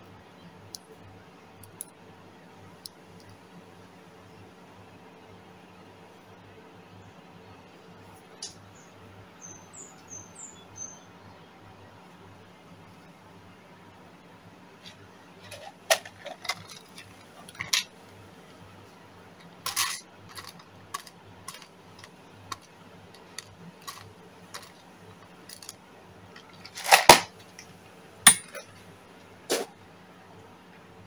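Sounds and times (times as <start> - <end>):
steady low hum: 0.0 - 31.0
small hard objects clicking: 19.4 - 25.8.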